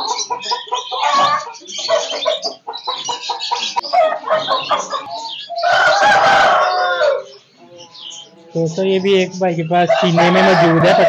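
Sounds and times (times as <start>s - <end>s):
chickens clucking: 0.0s - 11.0s
rooster crowing loudly: 5.6s - 7.2s, 9.9s - 11.0s.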